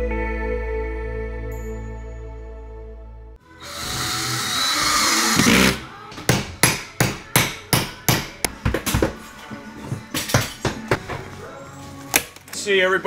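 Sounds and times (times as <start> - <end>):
cordless drill whirring: 3.6 - 5.8.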